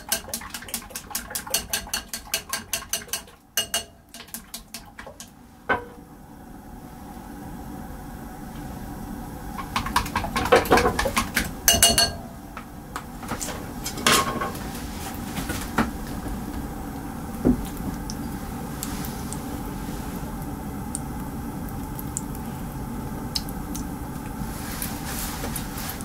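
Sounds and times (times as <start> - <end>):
gas stove hissing: 11.5 - 26.0.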